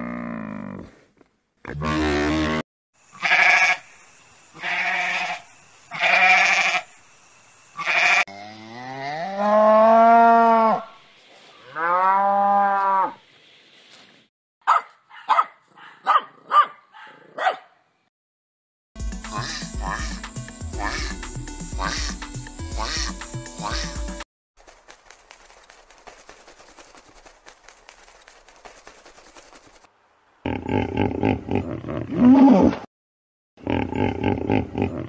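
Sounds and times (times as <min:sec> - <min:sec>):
cow mooing: 0:07.9 - 0:10.9, 0:11.6 - 0:13.2
puppy yipping: 0:14.7 - 0:17.7.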